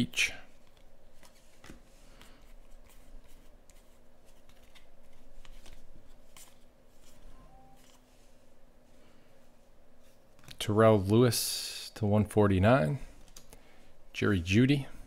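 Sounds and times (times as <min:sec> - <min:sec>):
cards rustling: 0:00.5 - 0:08.4.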